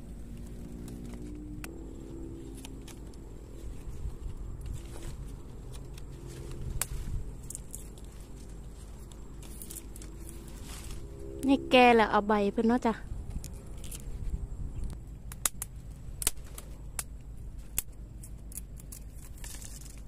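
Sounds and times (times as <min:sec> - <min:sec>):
plant leaves rustling: 0:00.0 - 0:11.6, 0:15.7 - 0:20.0
faint low hum: 0:00.0 - 0:20.0.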